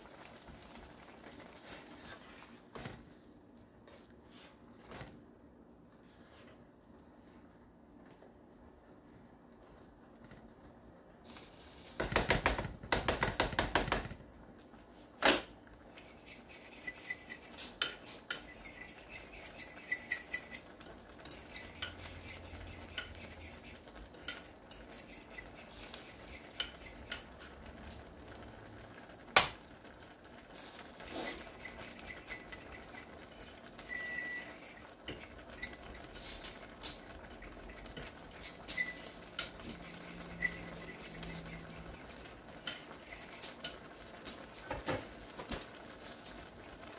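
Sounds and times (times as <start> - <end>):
utensil clinking against a wok: 16.0 - 27.7, 31.2 - 44.1.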